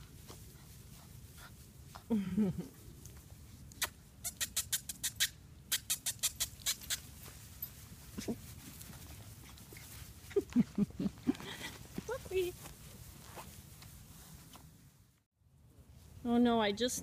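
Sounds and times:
quick sharp ticks: 3.7 - 7.0.

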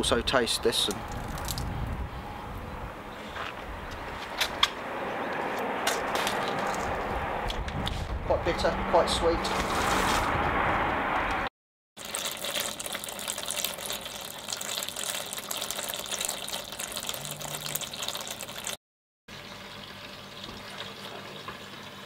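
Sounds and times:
liquid pouring into bucket: 1.1 - 1.7, 12.0 - 18.8.

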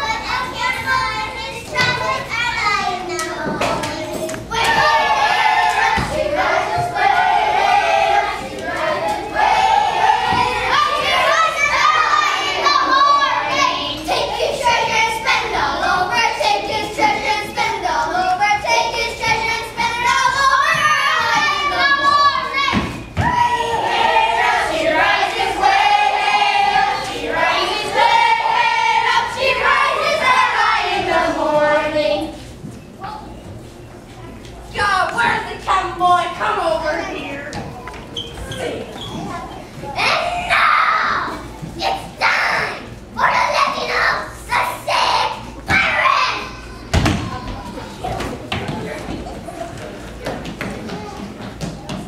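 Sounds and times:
children singing: 0.0 - 32.4.

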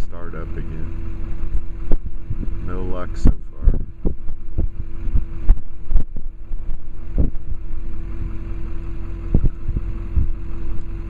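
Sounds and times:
steady low hum: 0.0 - 11.0
wind buffeting microphone: 0.0 - 11.0.

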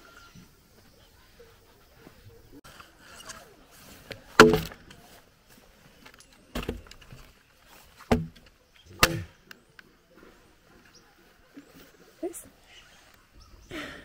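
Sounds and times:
wooden pole pounding vine on log: 4.3 - 4.9, 8.1 - 9.3.

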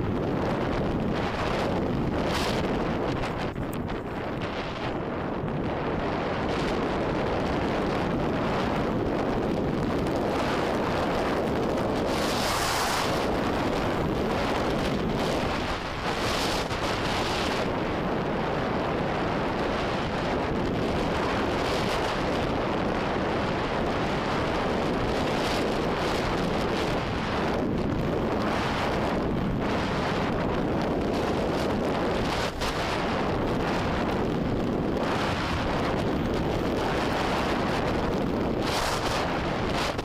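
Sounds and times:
wind buffeting microphone: 0.0 - 40.0.

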